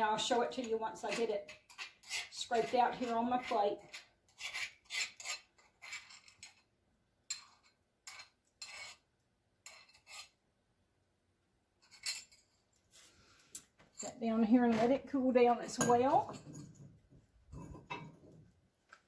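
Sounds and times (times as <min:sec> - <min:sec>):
utensil scraping a pot: 0:00.0 - 0:06.7, 0:07.3 - 0:10.4.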